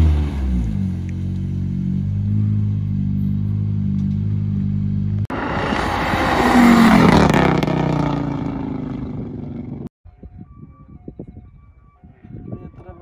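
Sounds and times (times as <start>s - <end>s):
car accelerating and passing by: 5.3s - 9.4s.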